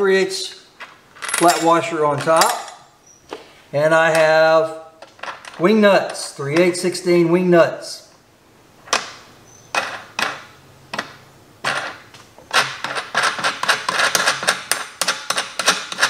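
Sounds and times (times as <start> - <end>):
steel hardware clinking: 1.2 - 2.9.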